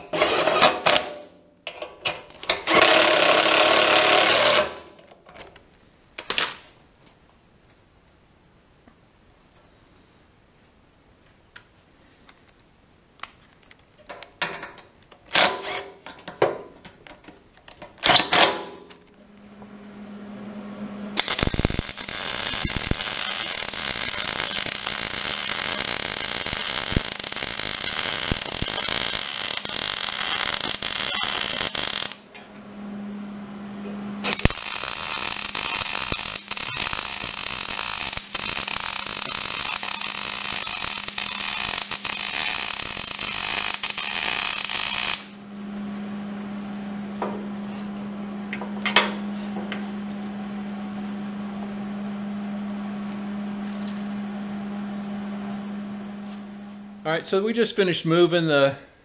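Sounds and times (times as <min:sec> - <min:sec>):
cordless drill bursts: 0:02.6 - 0:04.8
low hum: 0:18.6 - 0:43.2, 0:44.6 - 0:57.5
welding arc crackling: 0:21.2 - 0:32.4, 0:34.2 - 0:45.4, 0:53.1 - 0:54.3.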